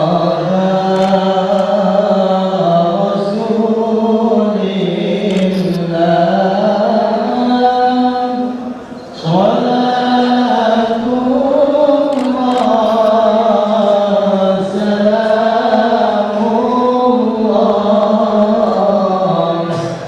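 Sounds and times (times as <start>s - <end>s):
devotional chanting voices: 0.0s - 20.0s.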